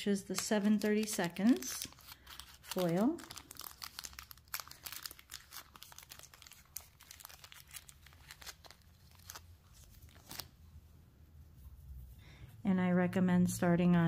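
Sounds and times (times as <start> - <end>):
tape crackling: 0.2 - 10.7
paper backing peeled: 0.3 - 10.6.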